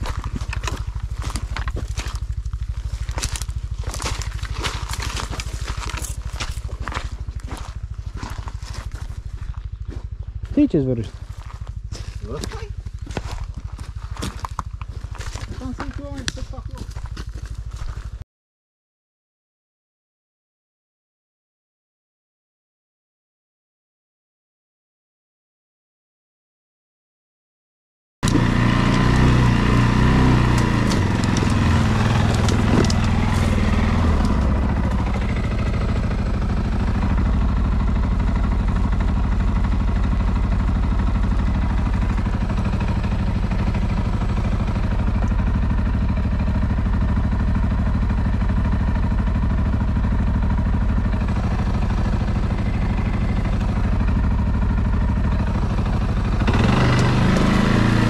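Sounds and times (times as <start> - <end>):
atv engine running: 0.0 - 18.2, 28.2 - 58.0.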